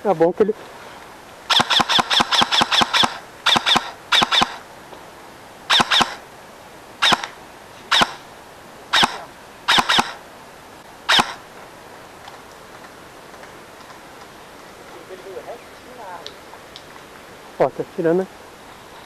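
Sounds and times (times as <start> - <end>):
airsoft rifle shots: 1.5 - 4.6, 5.7 - 6.2, 7.0 - 8.2, 8.9 - 10.2, 11.1 - 11.4.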